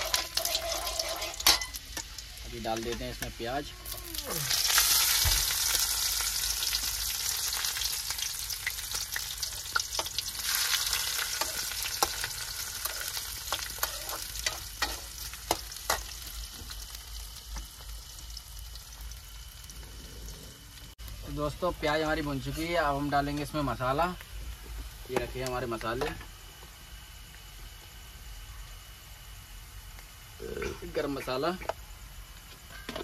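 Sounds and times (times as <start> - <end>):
spoon scraping pan: 0.0 - 1.8
onion sizzling in hot oil: 0.0 - 26.2.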